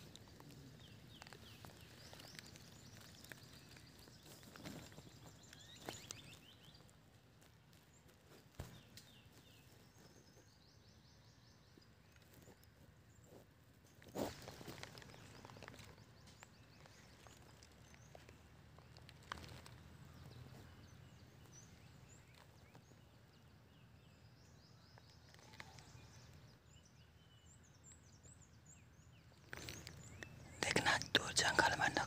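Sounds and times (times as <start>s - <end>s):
birds calling: 0.0s - 6.9s
crackles and knocks: 0.0s - 10.4s, 12.1s - 20.8s.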